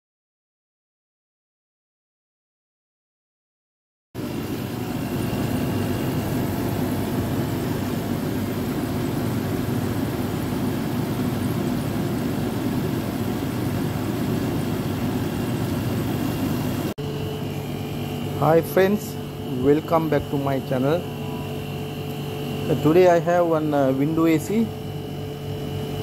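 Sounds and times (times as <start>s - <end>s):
air conditioner humming: 4.2s - 26.0s.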